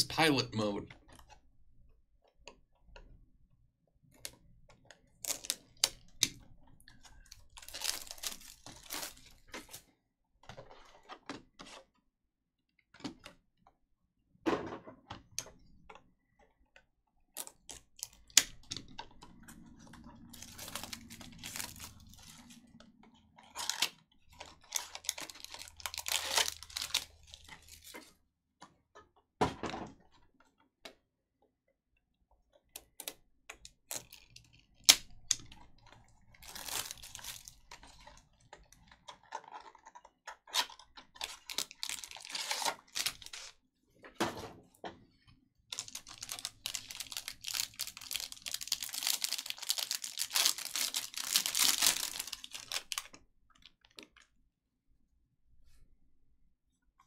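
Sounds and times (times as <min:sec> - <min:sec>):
plastic crinkling: 0:06.8 - 0:09.8, 0:17.4 - 0:22.8, 0:23.4 - 0:28.1, 0:35.8 - 0:38.2, 0:40.6 - 0:43.6, 0:45.7 - 0:54.2.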